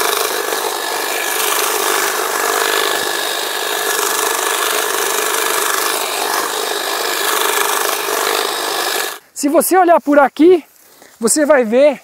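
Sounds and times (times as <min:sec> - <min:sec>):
hedge trimmer cutting grass: 0:00.0 - 0:09.3.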